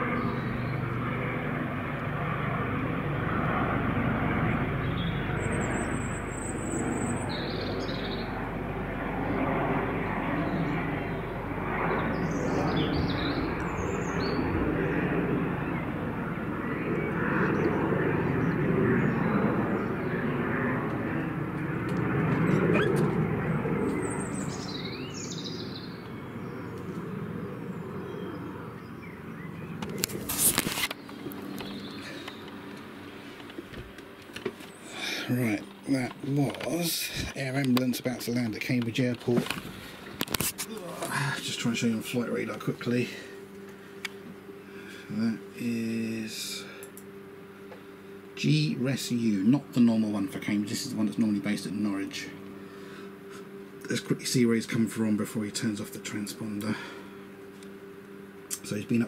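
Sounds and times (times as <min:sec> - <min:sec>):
birds chirping: 0:00.0 - 0:01.6, 0:04.4 - 0:59.0
helicopter flying past: 0:00.0 - 0:59.0.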